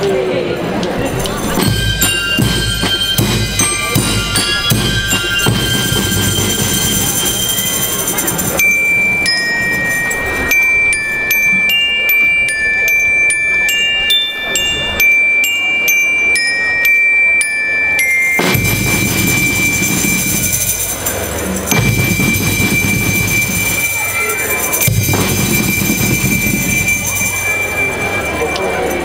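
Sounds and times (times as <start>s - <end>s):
bell lyres playing a melody: 0.6s - 29.0s
band with drums: 0.9s - 9.2s, 18.2s - 29.0s.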